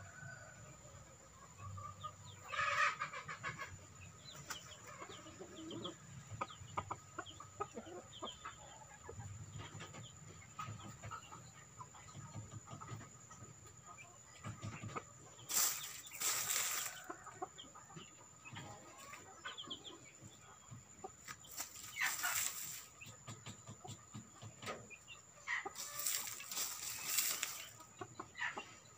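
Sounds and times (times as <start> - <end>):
chickens clucking: 0.2 - 28.9
rustling noise: 15.5 - 17.1, 21.2 - 23.0, 25.7 - 27.9.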